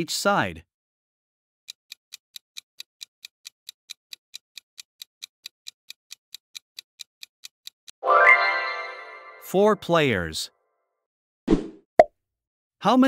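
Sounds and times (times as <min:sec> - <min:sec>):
rapid clock ticks: 0:01.7 - 0:08.0.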